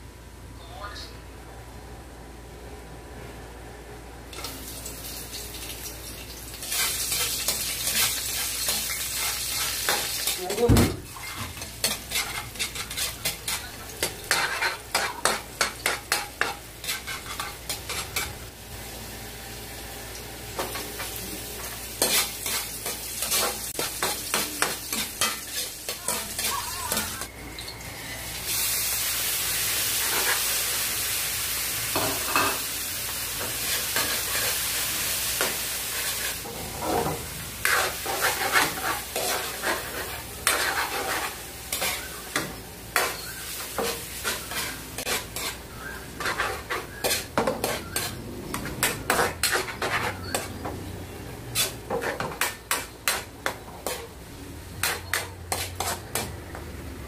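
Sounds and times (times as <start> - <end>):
meat sizzling in a wok: 4.4 - 56.2
metal ladle scraping a pan: 11.1 - 18.4, 36.0 - 50.7, 51.5 - 54.1, 54.8 - 56.3.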